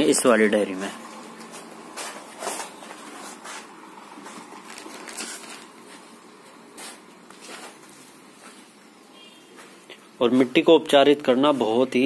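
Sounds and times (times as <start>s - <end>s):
plastic packets rustling: 1.4s - 8.7s
sharp crackles: 4.6s - 5.8s.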